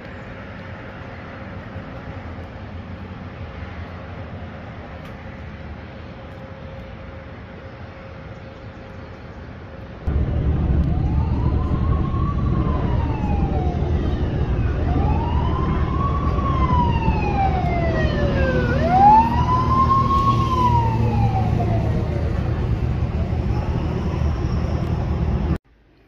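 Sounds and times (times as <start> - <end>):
steady low rumble: 0.0 - 25.6
siren wailing: 10.1 - 25.6.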